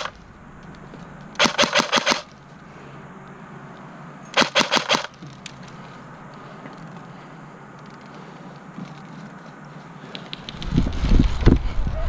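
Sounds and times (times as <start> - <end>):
airsoft rifle full-auto bursts: 1.4 - 2.3, 4.4 - 5.2.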